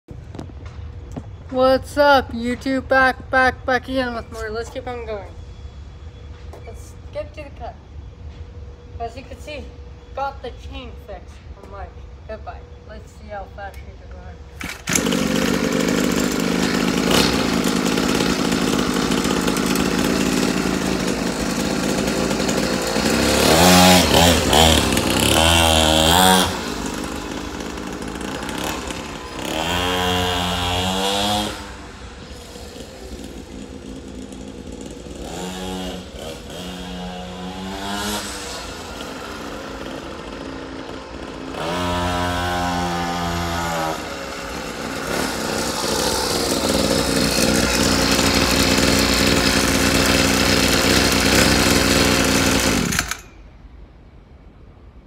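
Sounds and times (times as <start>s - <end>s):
mini dirt bike engine revving: 14.6s - 53.3s.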